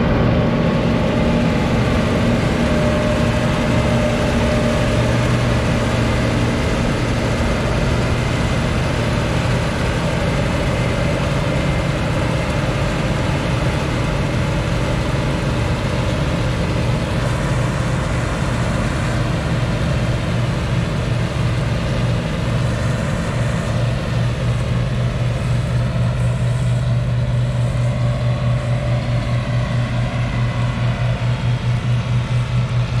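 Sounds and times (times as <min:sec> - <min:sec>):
combine harvester engine drone: 0:00.0 - 0:33.0
machinery noise: 0:00.0 - 0:33.0.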